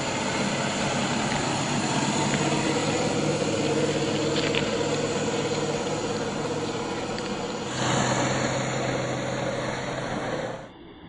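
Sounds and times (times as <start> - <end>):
electric motor whining: 0.0 - 10.7
even hiss: 7.5 - 10.6.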